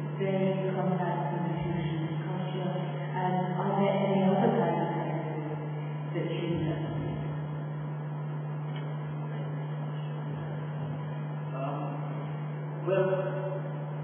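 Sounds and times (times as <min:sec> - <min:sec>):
electrical mains hum: 0:00.0 - 0:14.0
person speaking: 0:06.0 - 0:07.4.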